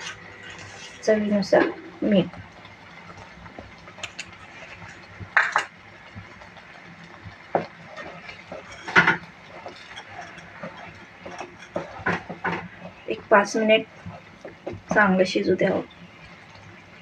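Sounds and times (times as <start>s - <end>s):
wooden spatula scraping a pan: 0.0s - 1.8s, 7.5s - 13.1s
soup simmering hiss: 0.0s - 17.0s.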